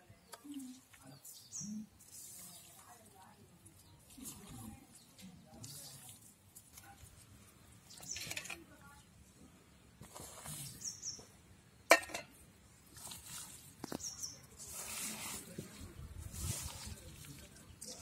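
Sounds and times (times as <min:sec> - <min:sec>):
wet squelching of kneaded meat: 0:12.7 - 0:18.0.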